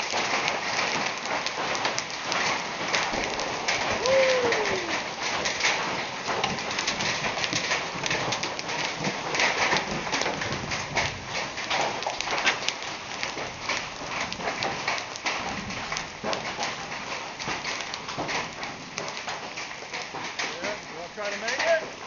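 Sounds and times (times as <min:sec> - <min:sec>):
heavy rain hissing: 0:00.0 - 0:17.4, 0:20.2 - 0:22.0
hail clattering: 0:00.0 - 0:22.0.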